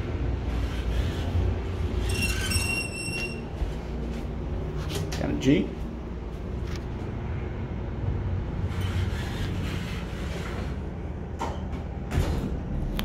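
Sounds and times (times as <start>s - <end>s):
elevator doors sliding shut: 0.0s - 3.8s, 8.6s - 13.0s
door operator rumble and hum: 0.0s - 13.0s.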